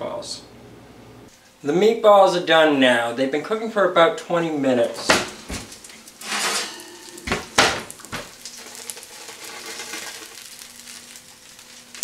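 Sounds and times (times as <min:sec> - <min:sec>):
hot fat sizzling: 0:04.7 - 0:12.0
metal pan scraping oven rack: 0:05.0 - 0:11.2.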